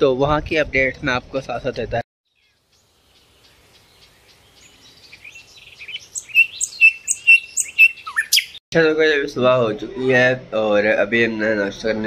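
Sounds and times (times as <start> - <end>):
bird sharp chirp: 2.3 - 8.6
birds chirping: 2.3 - 8.6.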